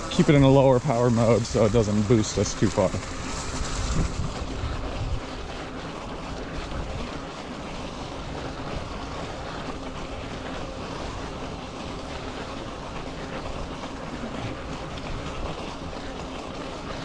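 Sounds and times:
wind on microphone: 0.0s - 7.4s
bike tyres churning snow: 0.0s - 17.0s.

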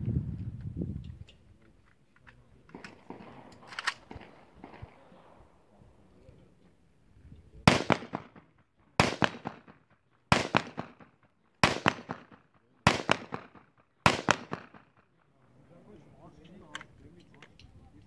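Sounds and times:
gunshots with echoes: 2.7s - 5.7s, 7.6s - 15.1s.

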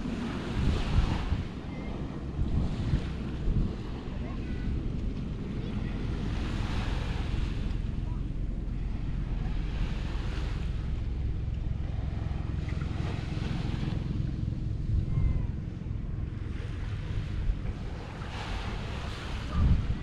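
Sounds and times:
sea waves washing onto beach: 0.0s - 20.0s
wind rumble on microphone: 0.0s - 20.0s.

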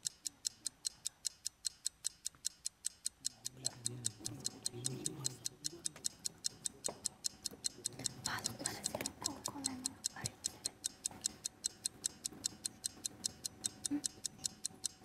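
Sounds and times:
fast countdown ticking: 0.0s - 15.0s
person talking quietly: 3.6s - 6.0s.

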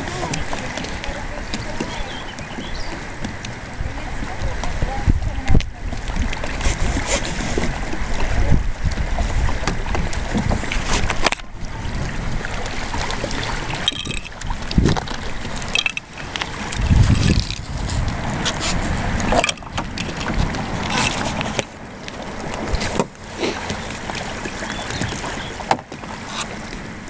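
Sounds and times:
wind buffeting microphone: 0.0s - 27.0s
straps and plastic panels clicking: 15.7s - 16.4s.

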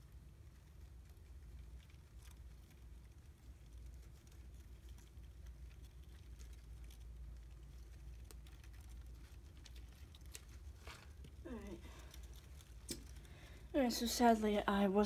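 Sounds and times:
plastic bag rustling: 4.0s - 14.7s.

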